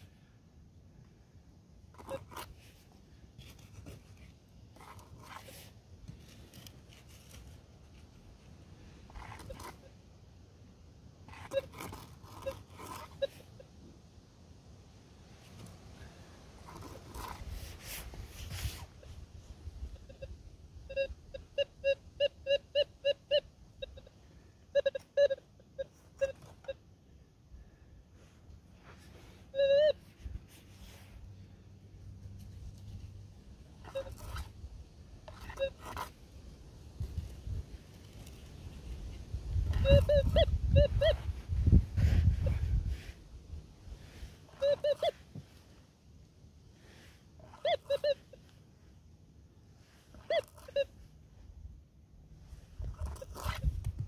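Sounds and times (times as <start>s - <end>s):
pick scraping gravelly soil: 1.8s - 10.0s, 11.2s - 13.6s, 15.3s - 19.8s
metal detector beeping: 1.9s - 2.5s, 9.1s - 10.0s, 11.2s - 13.8s, 19.8s - 26.9s, 29.2s - 30.2s, 33.8s - 34.6s, 35.2s - 36.1s, 39.6s - 41.4s, 44.4s - 45.3s, 47.4s - 48.5s, 50.1s - 51.1s, 52.8s - 53.6s.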